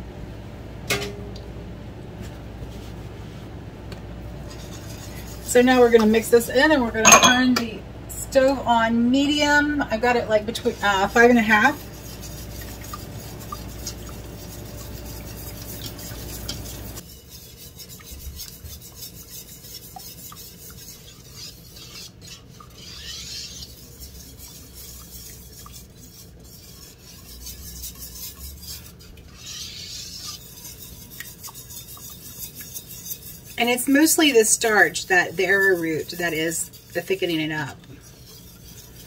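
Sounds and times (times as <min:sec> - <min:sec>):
utensil scraping a saucepan: 0:04.4 - 0:07.6, 0:08.3 - 0:39.0.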